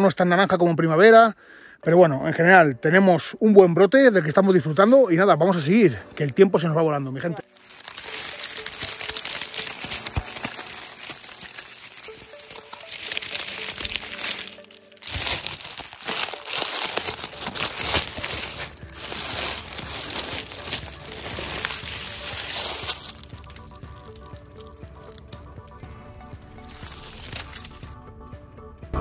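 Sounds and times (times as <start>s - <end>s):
dry leaves crunching and rustling: 7.4s - 28.0s.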